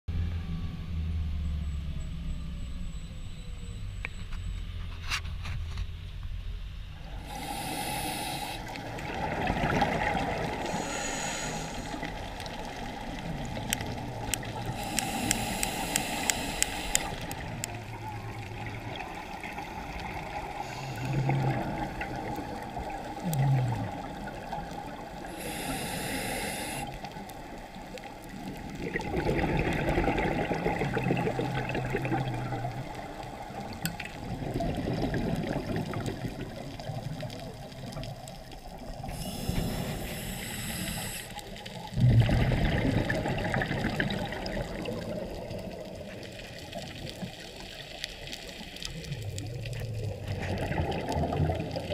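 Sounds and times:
diver inhaling through regulator: 7.2s - 8.8s, 10.6s - 12.3s, 14.6s - 17.4s, 20.5s - 21.5s, 25.2s - 27.0s, 39.0s - 41.6s
exhaust bubbles rushing: 8.8s - 10.7s, 28.5s - 32.9s, 33.6s - 37.6s, 41.9s - 46.1s, 49.4s - 51.9s.

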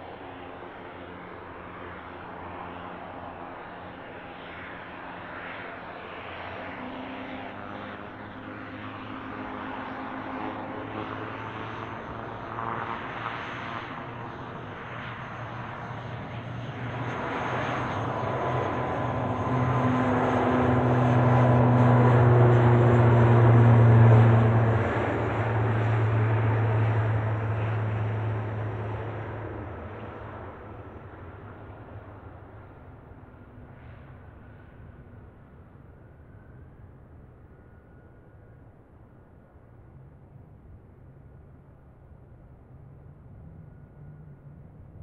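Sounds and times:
turboprop aircraft propeller drone: 0.0s - 45.0s.

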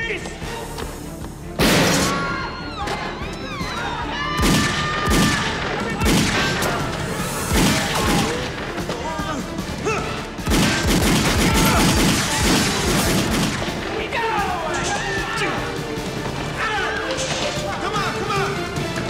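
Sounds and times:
dramatic score music: 0.0s - 19.0s
loud pistol shots: 1.6s - 2.2s, 4.4s - 6.8s, 7.4s - 8.5s, 10.4s - 13.9s.

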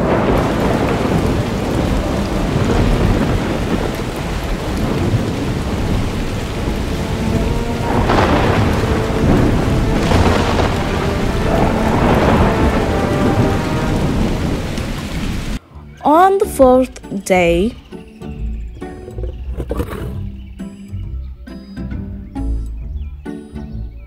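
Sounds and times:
rumbling thunder: 0.0s - 15.6s
heavy rain falling: 0.0s - 17.7s.

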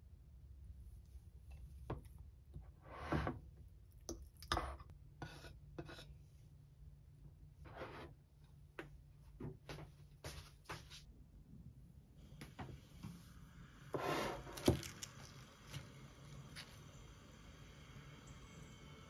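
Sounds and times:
scraping on a cutting board: 2.8s - 3.4s, 4.6s - 6.1s, 7.6s - 8.2s, 13.9s - 15.0s.

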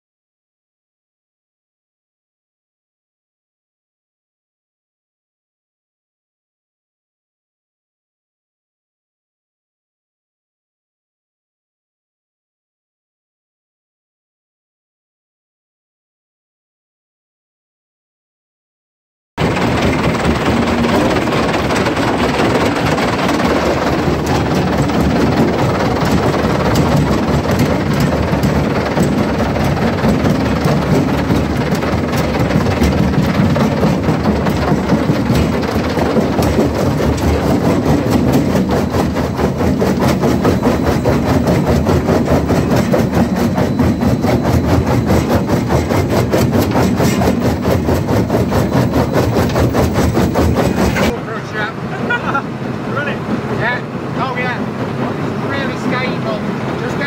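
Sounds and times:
rock crusher clattering: 19.4s - 51.1s.

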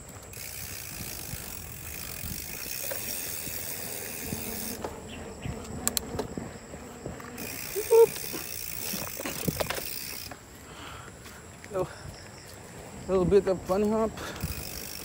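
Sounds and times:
bike freewheel ticking: 0.0s - 10.8s, 12.2s - 15.0s
tyres rolling over trail: 0.0s - 15.0s
sharp clicks: 5.6s - 6.3s.

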